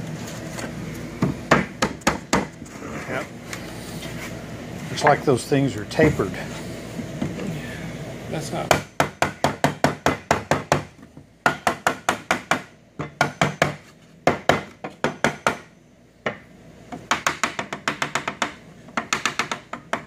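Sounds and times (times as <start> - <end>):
hammer tapping on wood: 17.0 - 20.0.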